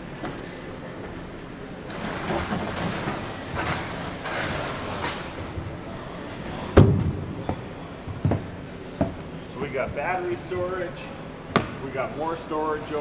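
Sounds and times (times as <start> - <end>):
loud thump: 6.8 - 7.3.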